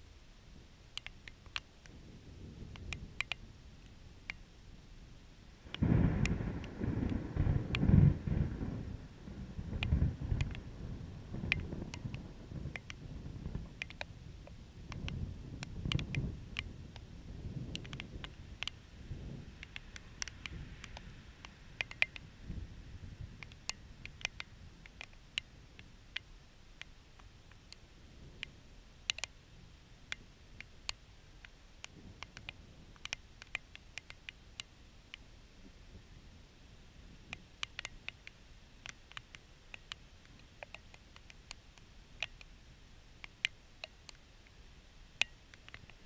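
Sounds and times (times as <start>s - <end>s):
faint low background noise: 0.0s - 46.0s
sharp ticks and clicks: 0.9s - 2.0s, 2.6s - 4.5s, 5.7s - 8.8s, 9.6s - 18.9s, 19.6s - 22.3s, 23.2s - 29.4s, 30.0s - 35.3s, 37.2s - 44.6s, 45.2s - 46.0s
distant thunder rumbling: 5.7s - 13.7s.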